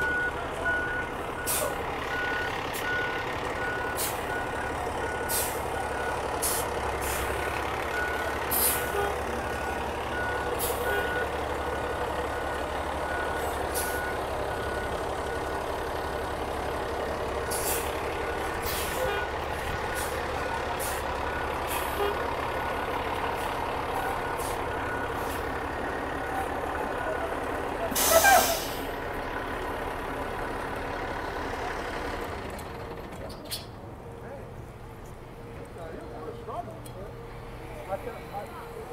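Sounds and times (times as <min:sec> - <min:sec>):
diesel engine idling: 0:00.0 - 0:38.9
air brake hisses: 0:05.3 - 0:05.6, 0:06.4 - 0:07.3, 0:17.5 - 0:17.9, 0:27.9 - 0:28.9.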